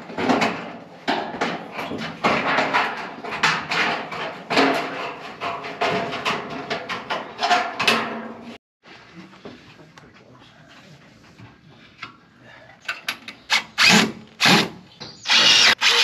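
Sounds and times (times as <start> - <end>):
metal roofing sheet rattling: 0.0 - 8.6.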